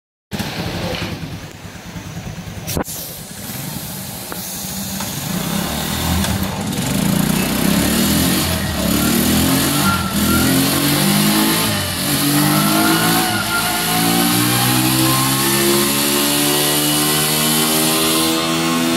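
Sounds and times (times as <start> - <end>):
motorcycle engine revving: 0.3 - 18.9
thin rising whine: 8.3 - 18.0.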